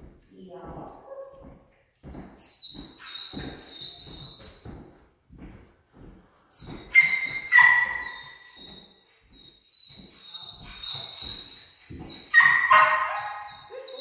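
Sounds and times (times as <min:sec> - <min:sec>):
footsteps on laminate floor: 0:00.0 - 0:14.0
dog barking: 0:07.0 - 0:08.2, 0:12.3 - 0:14.0.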